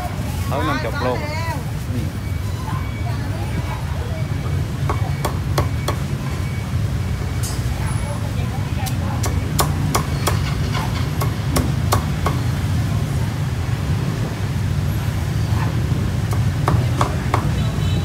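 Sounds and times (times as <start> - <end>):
cleaver chopping on wooden block: 4.8 - 6.1, 9.2 - 12.5, 16.3 - 17.6.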